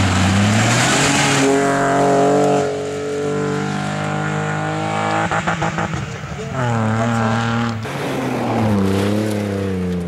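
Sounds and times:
car engine: 0:00.0 - 0:10.0
tyres on gravel: 0:06.0 - 0:10.0.

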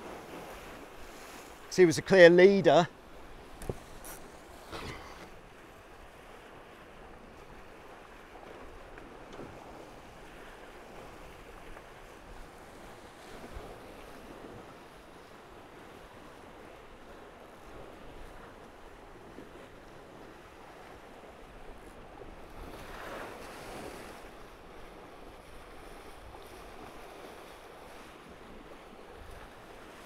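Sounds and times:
water rushing past hulls: 0:00.0 - 0:30.0
wind on microphone: 0:03.2 - 0:05.6.

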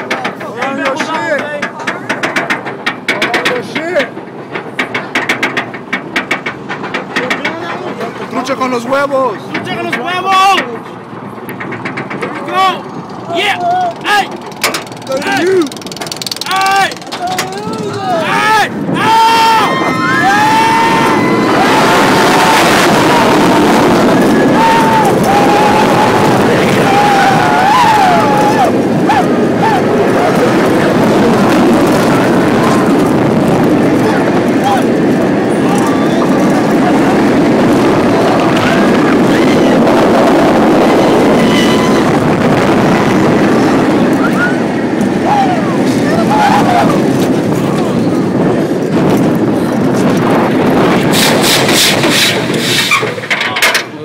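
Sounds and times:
roller coaster rumble: 0:00.0 - 0:54.0
wind rushing on microphone: 0:15.0 - 0:54.0
sharp scraping rasps: 0:51.0 - 0:53.6.

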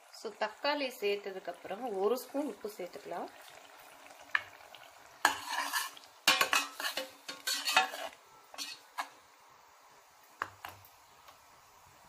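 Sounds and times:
metal spoon scraping a pot: 0:05.2 - 0:09.1
spoon tapping a pot: 0:06.2 - 0:07.9.

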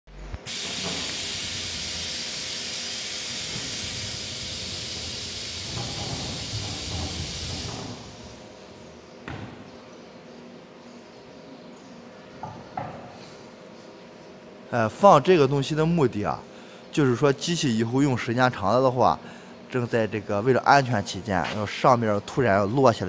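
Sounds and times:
machine hissing loudly: 0:00.4 - 0:08.5.

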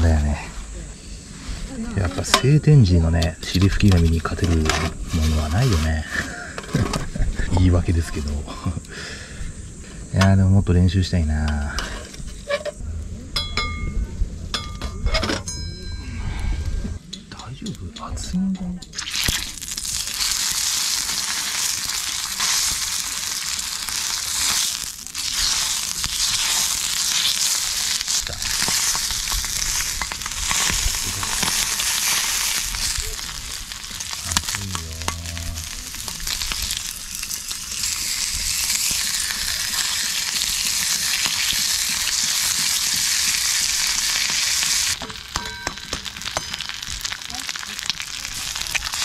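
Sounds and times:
bacon sizzling in a pan: 0:01.7 - 0:06.0, 0:19.0 - 0:49.0.

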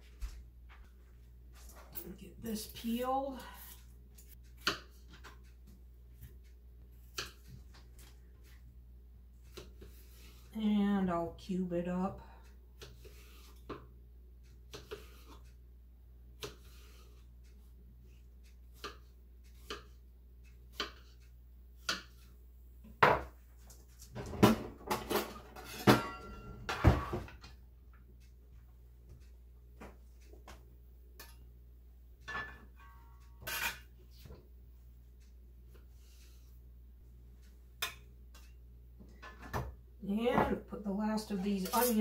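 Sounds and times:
knocks and clinks with ringing: 0:25.6 - 0:27.2, 0:32.3 - 0:33.7.

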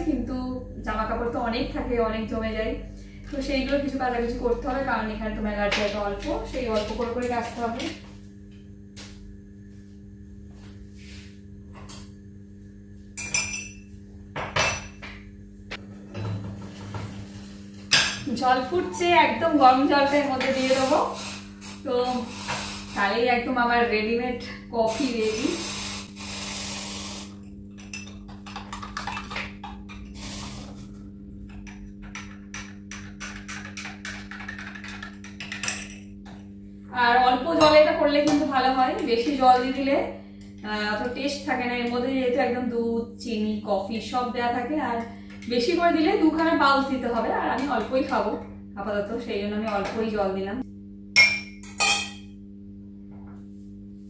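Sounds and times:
steady low hum: 0:00.0 - 0:54.0
low hum: 0:23.0 - 0:42.7
dishes and utensils clinking: 0:51.2 - 0:52.3.

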